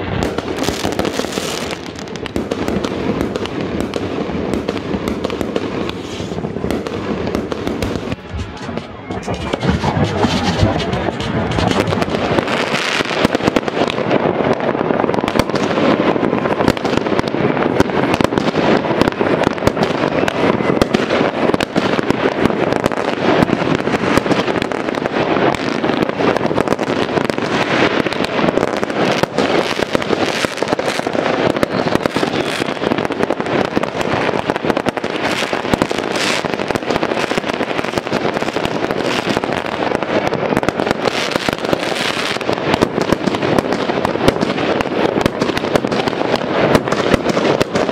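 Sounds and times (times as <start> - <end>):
fireworks crackling and banging: 0.0 - 47.9.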